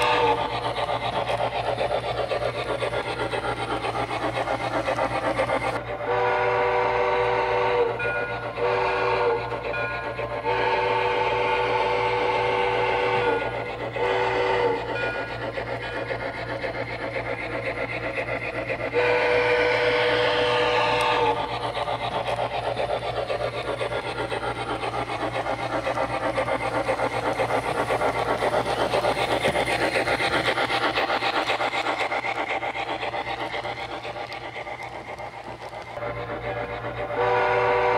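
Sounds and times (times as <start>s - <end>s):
steady rasping chuff: 0.0s - 37.9s
chime steam whistle blasts: 6.0s - 15.3s, 18.9s - 21.4s, 36.6s - 37.9s.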